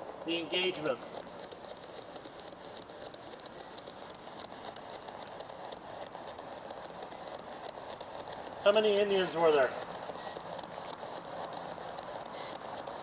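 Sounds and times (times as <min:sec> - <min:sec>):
rapid irregular clicks: 0:00.0 - 0:13.0
radio static hiss: 0:00.3 - 0:01.2, 0:08.6 - 0:13.0.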